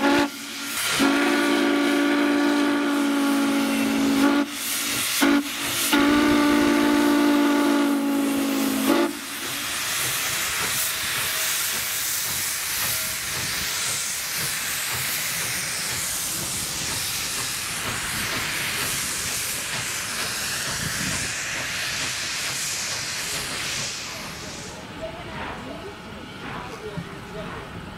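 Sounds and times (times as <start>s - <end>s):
steam locomotive whistle: 0.0s - 9.4s
steam hissing: 0.0s - 27.6s.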